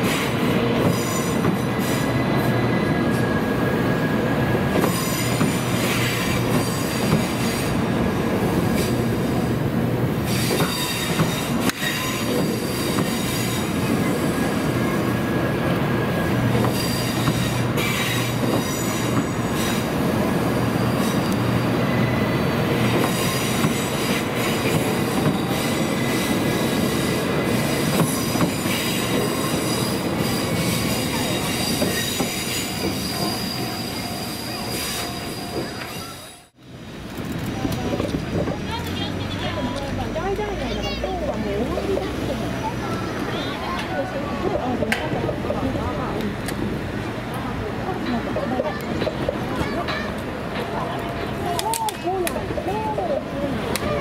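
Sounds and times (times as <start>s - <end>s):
rail rumble: 0.0s - 54.0s
train wheels squealing: 0.8s - 7.8s, 10.2s - 20.0s, 20.7s - 36.5s.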